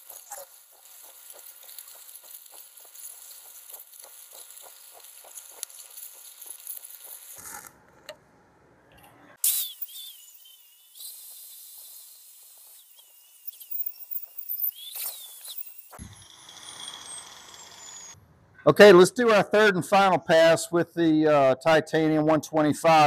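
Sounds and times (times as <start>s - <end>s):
angle grinder wire wheel whine: 0.0s - 7.6s, 9.5s - 18.2s.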